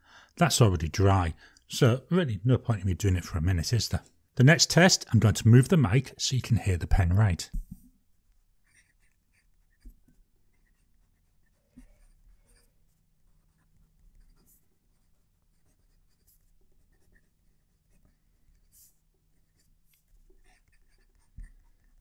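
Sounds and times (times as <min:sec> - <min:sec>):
fountain pen scratching on paper: 0:08.1 - 0:22.0.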